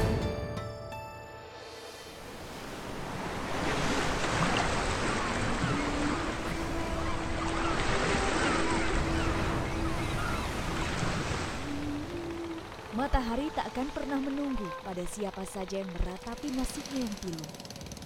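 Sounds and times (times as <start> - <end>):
waves breaking and washing: 1.4 - 14.8.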